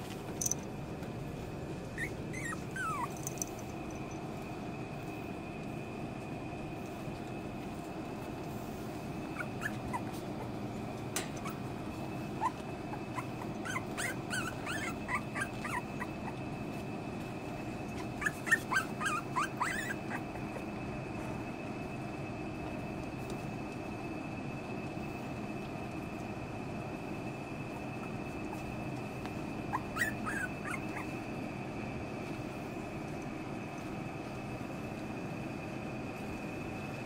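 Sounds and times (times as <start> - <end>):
low background hum: 0.0 - 37.0
puppies whimpering and yipping: 1.9 - 3.5, 7.7 - 21.0, 27.0 - 31.5.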